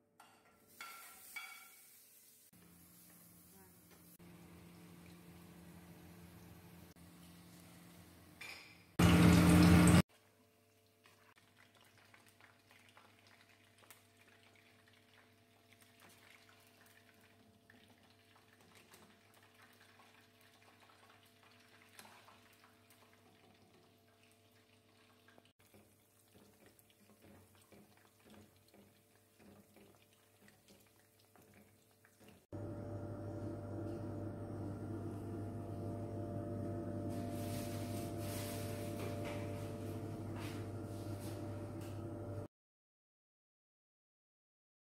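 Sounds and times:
sauce simmering in pot: 10.8s - 32.5s
low hum: 32.6s - 42.5s.

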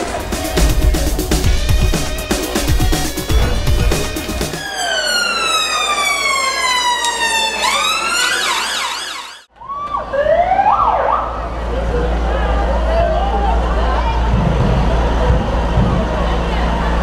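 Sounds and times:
siren wailing and yelping: 4.3s - 9.5s.

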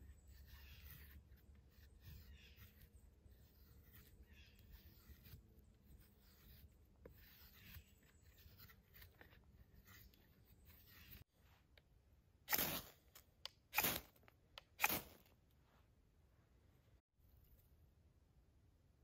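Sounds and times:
knife scraping wooden stick: 0.0s - 11.3s.

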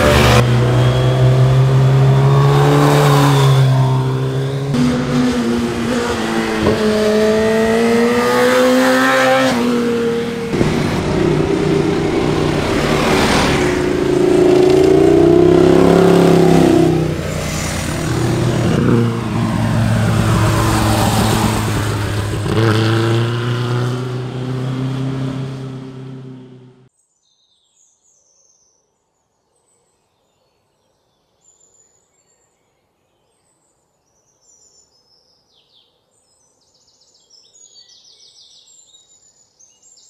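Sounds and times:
motorcycle engine running loud: 0.0s - 26.8s.

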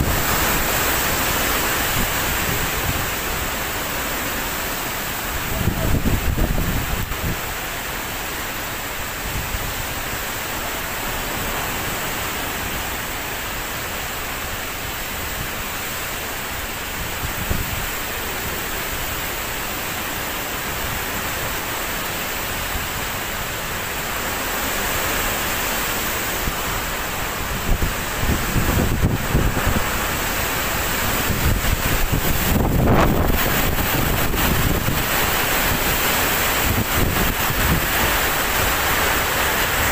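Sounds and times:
strong wind and heavy rain: 0.0s - 39.9s
wind gusts buffeting microphone: 5.2s - 7.5s, 16.9s - 18.5s, 26.2s - 39.9s.

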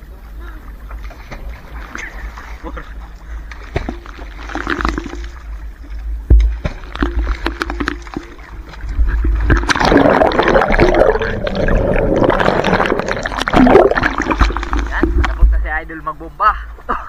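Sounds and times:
muffled underwater churning: 0.0s - 17.0s
rush of bubbling water: 3.5s - 15.6s.

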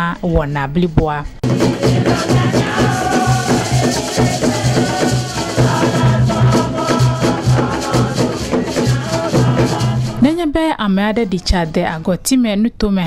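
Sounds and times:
dance music drum beat: 1.4s - 10.3s
shaker rattles: 1.4s - 10.3s.

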